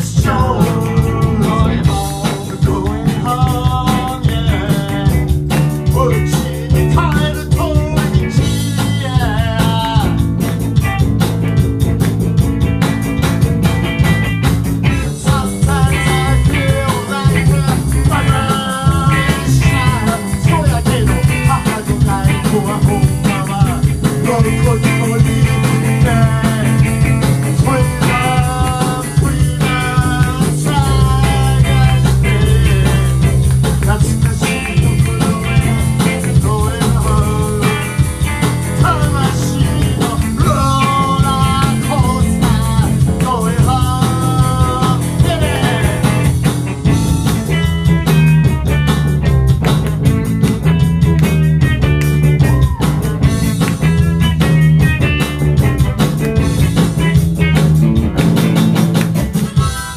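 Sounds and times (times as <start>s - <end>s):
man singing: 0.0s - 10.6s, 14.8s - 47.0s
drum kit: 0.0s - 59.9s
electric guitar: 0.0s - 59.9s.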